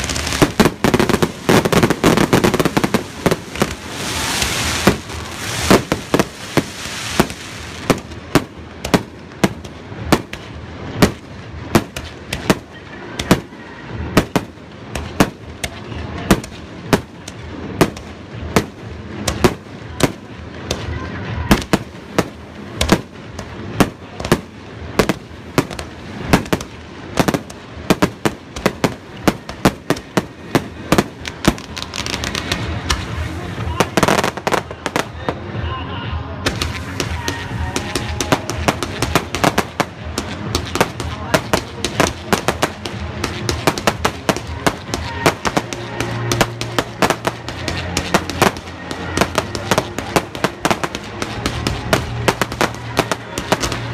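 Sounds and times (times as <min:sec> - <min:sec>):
dense crackling hiss: 0:00.0 - 0:53.9.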